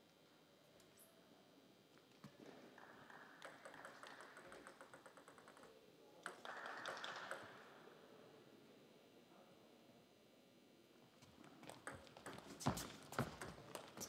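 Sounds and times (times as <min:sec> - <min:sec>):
table tennis ball bouncing: 0:02.8 - 0:07.7, 0:11.6 - 0:14.0.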